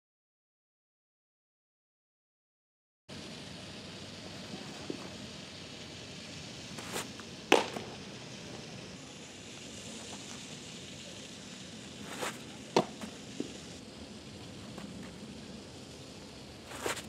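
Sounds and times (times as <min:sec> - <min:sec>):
soft scuff: 0:04.5 - 0:05.2, 0:06.8 - 0:08.7, 0:12.0 - 0:13.6, 0:16.7 - 0:17.0
baseball smacking into catcher's mitt: 0:06.8 - 0:08.0, 0:12.1 - 0:13.5.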